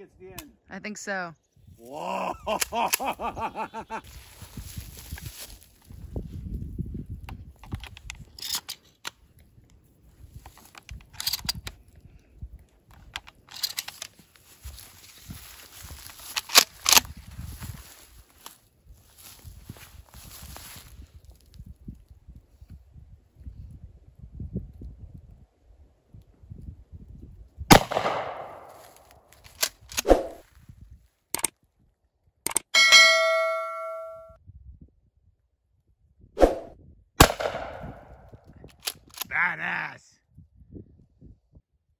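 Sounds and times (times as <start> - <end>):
handling rustle: 4.1 - 6.2, 13.1 - 21.4
shells clicking into shotgun: 10.5 - 11.8, 13.0 - 14.2, 38.6 - 39.3
shotgun blast: 27.7 - 29.0, 37.2 - 38.2
bell-like ding: 32.8 - 34.4.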